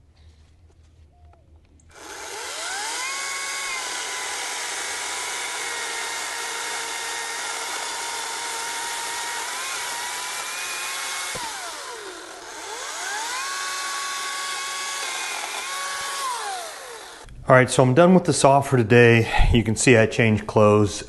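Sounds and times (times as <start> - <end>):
chain cutting wood: 1.9 - 17.3
chainsaw motor whine: 1.9 - 17.3.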